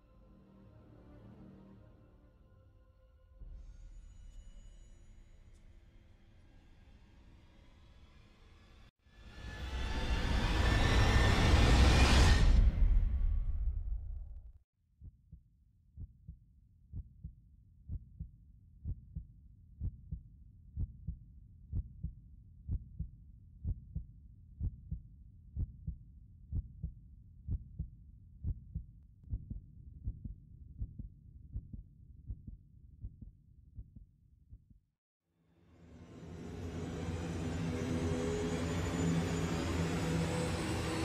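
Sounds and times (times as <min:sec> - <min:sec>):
heartbeat double thump: 0:27.5 - 0:34.8.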